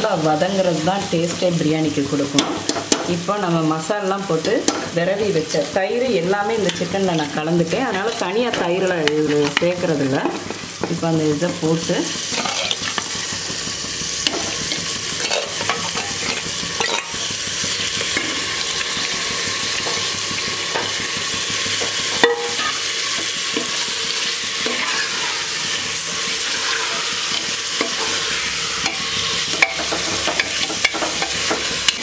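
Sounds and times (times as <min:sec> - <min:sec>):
chicken sizzling in a pot: 0:00.0 - 0:32.0
steel spoon scraping a pot: 0:12.2 - 0:13.2, 0:14.2 - 0:21.1, 0:21.7 - 0:32.0.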